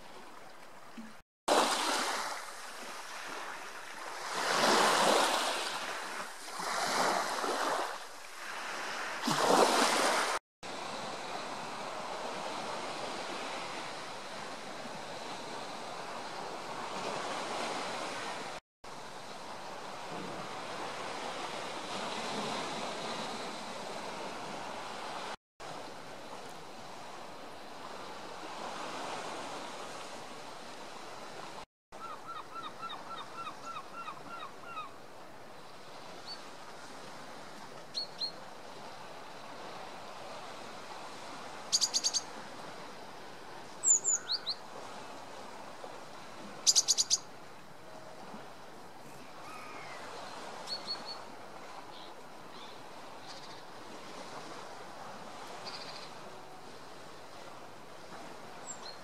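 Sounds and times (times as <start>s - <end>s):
sea waves washing: 1.5s - 31.6s
sharp high bird chirps: 46.7s - 47.2s
birds calling: 49.4s - 51.2s.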